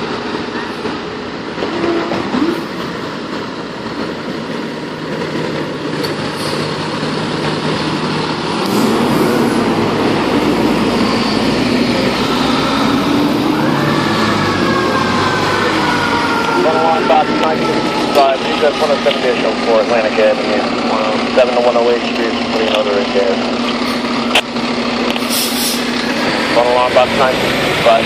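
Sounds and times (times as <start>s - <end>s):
diesel truck engines rumbling: 0.0s - 28.0s
high tone sliding down: 8.6s - 19.6s.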